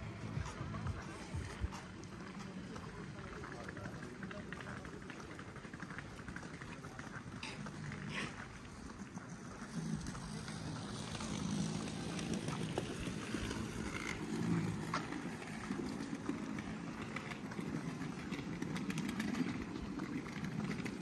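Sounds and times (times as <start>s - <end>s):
steady low rumble: 0.0s - 3.3s.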